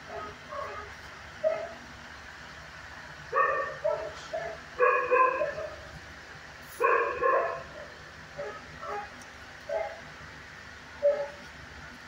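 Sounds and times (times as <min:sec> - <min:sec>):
dog barking: 0:00.0 - 0:01.8, 0:03.3 - 0:05.9, 0:06.8 - 0:10.1, 0:11.0 - 0:11.4.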